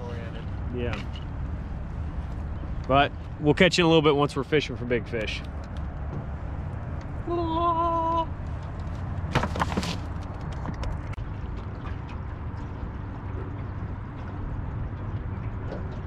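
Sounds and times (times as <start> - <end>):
steady low rumble of boat: 0.0 - 16.0
man exclaiming: 7.2 - 8.3
sharp knocks and rattles: 8.6 - 14.4.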